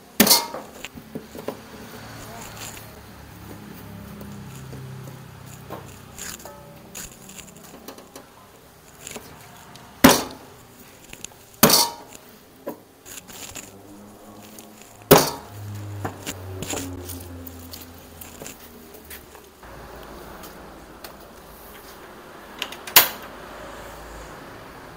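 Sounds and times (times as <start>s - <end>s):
utensils clicking and clinking: 0.0s - 19.6s
kitchen utensils knocking: 0.2s - 2.0s, 10.0s - 10.5s, 11.6s - 12.8s, 15.0s - 16.3s
low hum: 13.2s - 22.5s.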